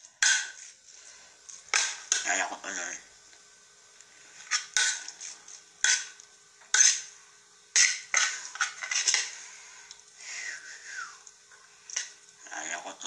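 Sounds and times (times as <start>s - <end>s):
fork clinking and scraping on plate: 5.8s - 6.1s, 6.7s - 7.1s, 7.8s - 9.3s.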